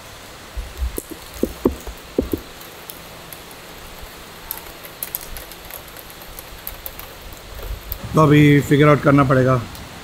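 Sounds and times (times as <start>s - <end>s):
steady rain: 0.0s - 10.0s
soft low thumps: 1.0s - 2.5s.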